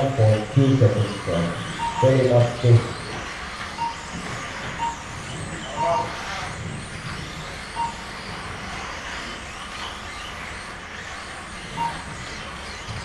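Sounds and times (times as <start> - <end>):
electronic beep: 0.0 - 8.4, 11.7 - 13.0
small electric motors whining: 0.0 - 13.0.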